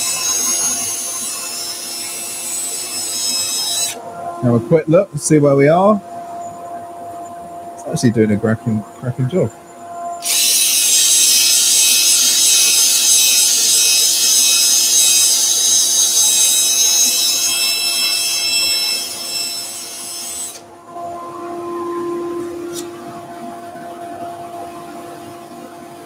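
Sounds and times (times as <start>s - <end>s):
drill sanding disc hissing: 0.0s - 4.0s, 10.2s - 20.6s
lathe humming: 0.0s - 26.0s.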